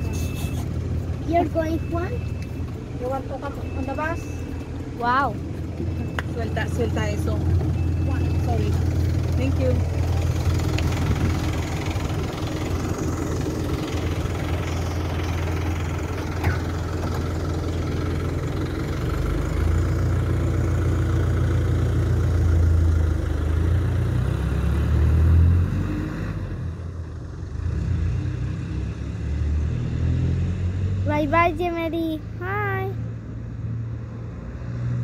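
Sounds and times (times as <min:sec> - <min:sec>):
bus engine idling: 0:00.0 - 0:24.1, 0:26.6 - 0:27.6, 0:31.1 - 0:33.0.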